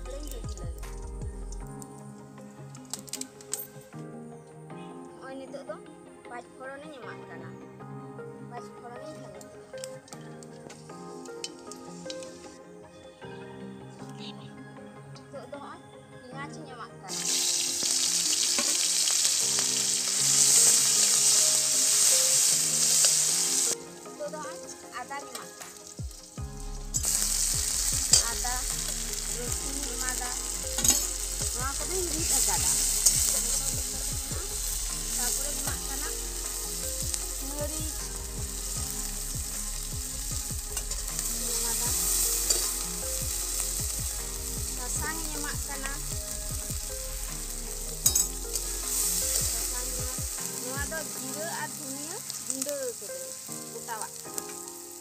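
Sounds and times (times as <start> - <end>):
food sizzling in hot oil: 10.7 - 12.6, 17.1 - 55.0
metal spatula scraping wok: 26.6 - 35.7, 39.8 - 43.8, 47.8 - 49.7.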